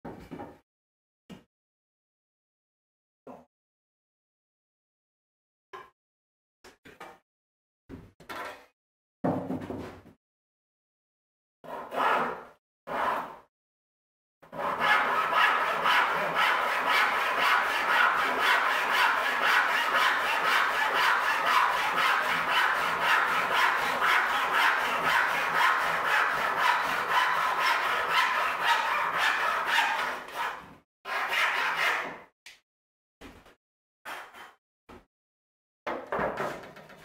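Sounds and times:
hand tool rasping: 14.6s - 30.5s.

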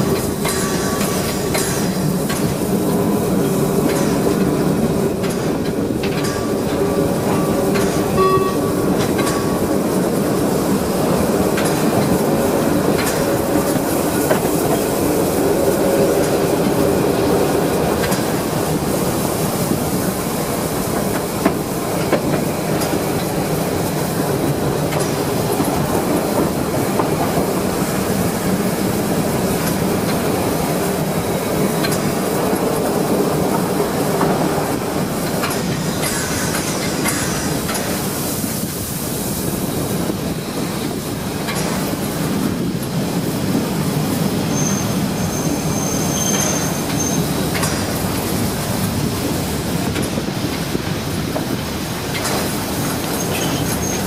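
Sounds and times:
train wheels clattering over joints: 0.0s - 54.0s
high-pitched wheel squeal: 44.5s - 47.4s.

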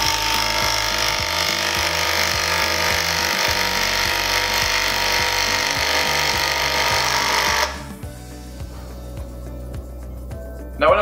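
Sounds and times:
power driver driving screw: 0.0s - 8.0s
background music: 0.0s - 11.0s.

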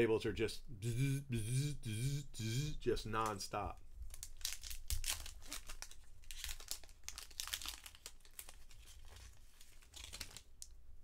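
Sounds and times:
wrapper crinkling and tearing: 4.1s - 10.8s.

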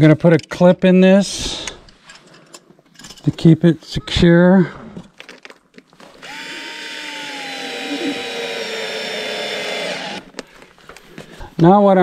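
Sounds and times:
cordless drill whining: 6.2s - 10.5s.

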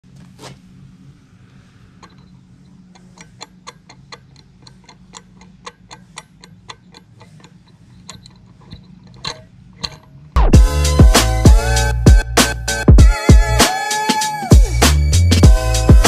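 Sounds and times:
turbo shaft clicking: 2.0s - 12.8s.

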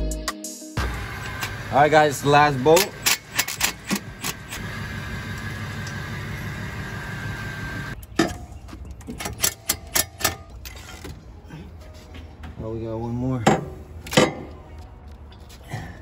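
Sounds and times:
cordless power tool whine: 0.8s - 2.7s, 3.9s - 8.0s.

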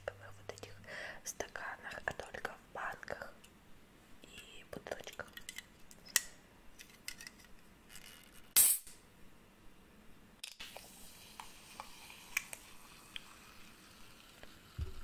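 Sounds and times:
can opening hiss: 8.5s - 9.0s, 10.5s - 15.0s.

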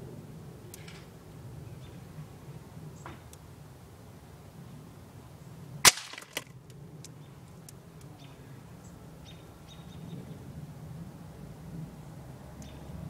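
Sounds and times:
gunshot crack: 5.8s - 6.4s
faint crack: 5.9s - 6.6s.

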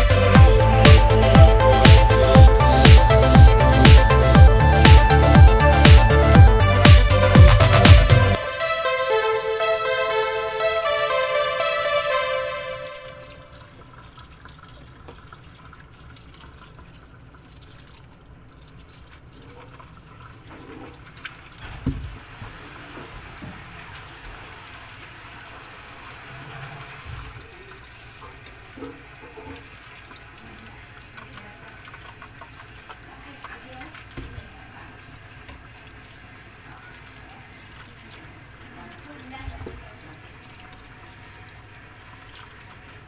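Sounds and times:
running water from a tap: 13.0s - 43.0s.

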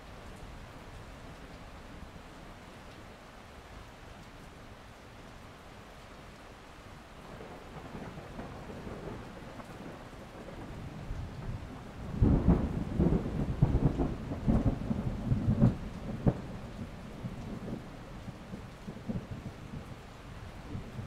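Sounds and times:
rain hissing: 0.0s - 21.0s
thunder rumbling: 7.3s - 21.0s.

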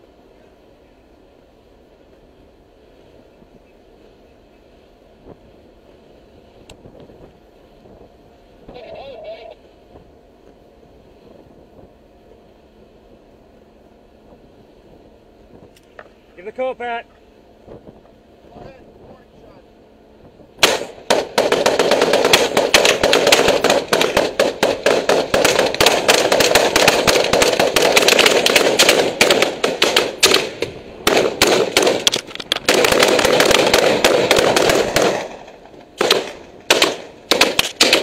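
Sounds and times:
rapid rifle gunfire: 20.6s - 38.0s.

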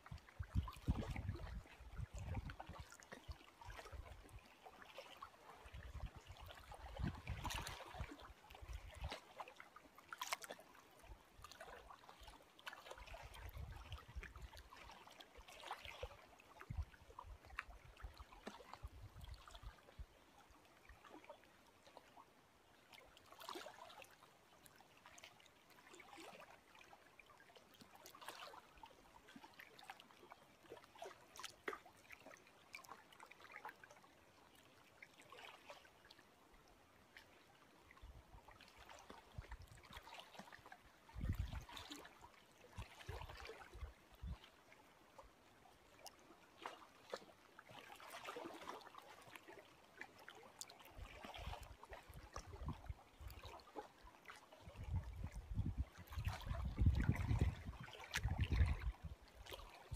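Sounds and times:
wind rumbling on microphone: 0.0s - 2.8s, 5.8s - 8.0s, 41.1s - 41.6s, 52.2s - 52.9s, 54.6s - 59.1s
lake waves lapping: 0.0s - 59.9s.

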